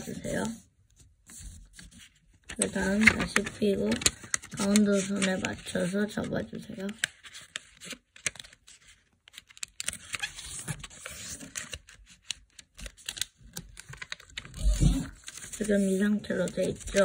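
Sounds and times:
paper rustling and creasing: 0.0 - 17.0
small sharp paper clicks: 6.9 - 15.7.

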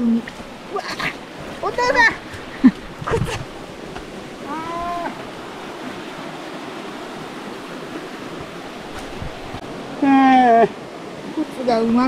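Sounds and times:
flowing water rushing: 0.0 - 12.0
person crying out: 4.4 - 5.2.

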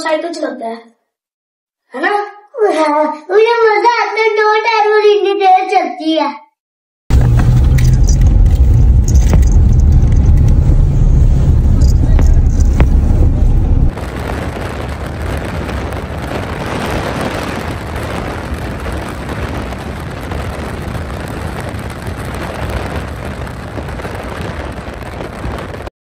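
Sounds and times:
car highway wind and road noise: 7.1 - 14.0.

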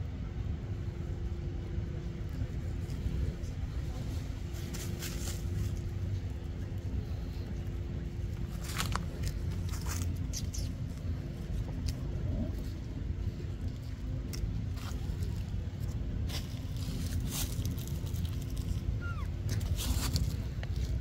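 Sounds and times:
steady low rumble: 0.0 - 21.0
dead leaves crackling: 14.3 - 21.0.

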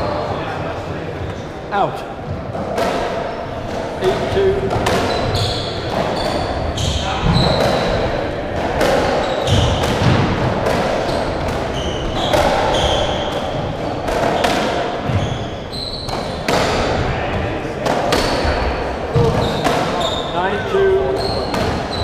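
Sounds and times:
trainers squeaking on wooden floor: 4.8 - 8.1, 14.4 - 16.4, 18.2 - 22.0.

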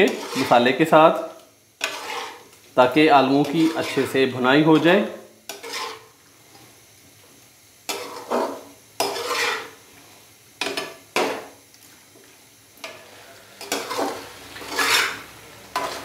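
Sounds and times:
metal spatula scraping a pan: 0.0 - 0.8, 1.8 - 2.5, 3.3 - 6.2, 7.9 - 9.8, 10.6 - 11.6, 12.8 - 16.0.

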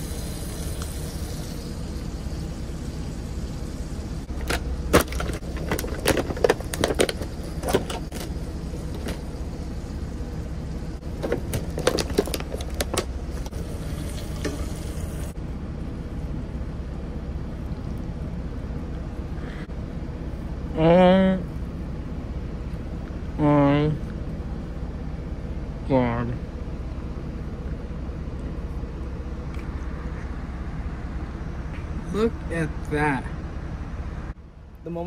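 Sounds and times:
truck engine idling hum: 0.0 - 14.1
plastic packaging crackling: 11.2 - 13.1.

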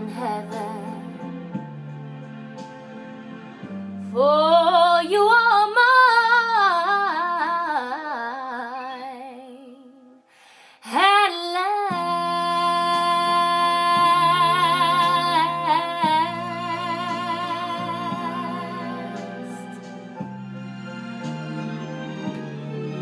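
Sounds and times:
soft low accompaniment chords: 11.9 - 23.0.

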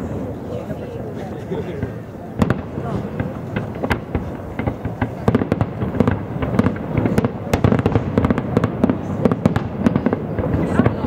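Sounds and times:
fireworks bursting: 1.8 - 11.0.

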